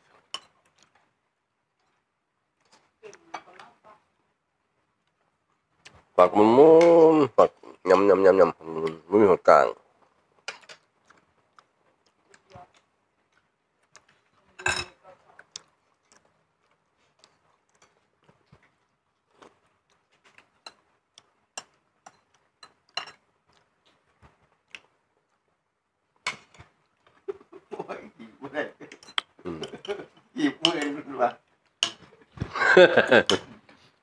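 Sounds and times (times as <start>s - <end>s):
spoons tapping on plates: 21.6s - 23.2s, 28.9s - 31.0s, 31.8s - 32.1s.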